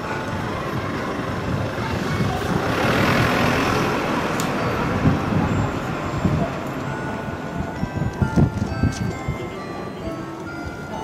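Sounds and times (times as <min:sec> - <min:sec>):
vehicle passing: 0:00.0 - 0:07.9.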